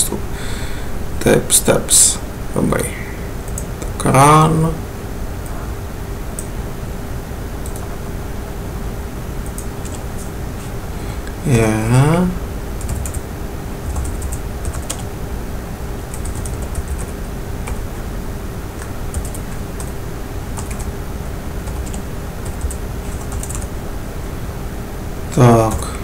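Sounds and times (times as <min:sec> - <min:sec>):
steady low hum: 0:00.0 - 0:26.0
keyboard typing: 0:07.6 - 0:07.9, 0:12.8 - 0:13.2, 0:13.8 - 0:15.1, 0:16.1 - 0:17.8, 0:18.8 - 0:20.0, 0:20.6 - 0:20.9, 0:21.6 - 0:23.7.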